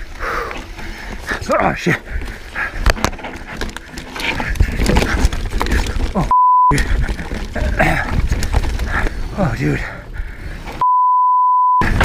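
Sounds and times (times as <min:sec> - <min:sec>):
mountain bike rattling: 0:00.0 - 0:10.8
tyres rumbling over dirt: 0:00.0 - 0:10.8
steady bleep tone: 0:06.3 - 0:06.7, 0:10.8 - 0:11.8.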